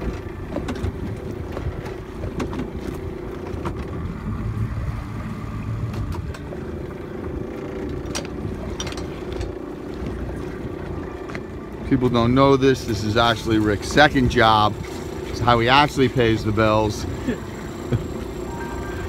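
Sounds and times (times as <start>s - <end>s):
sharp knocks on boat: 0.0s - 4.0s
boat motor hum: 0.0s - 19.0s.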